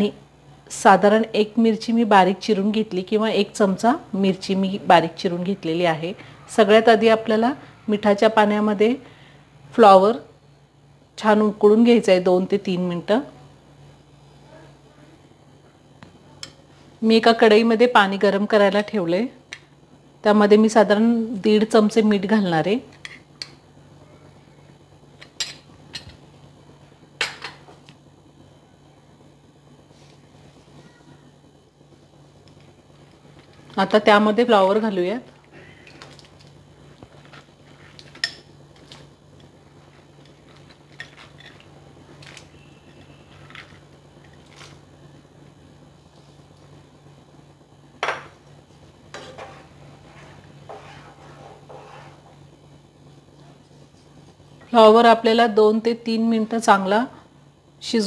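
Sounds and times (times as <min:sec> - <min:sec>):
low steady hum: 0:00.0 - 0:58.0
spatula scraping and tapping pan: 0:49.1 - 0:52.4.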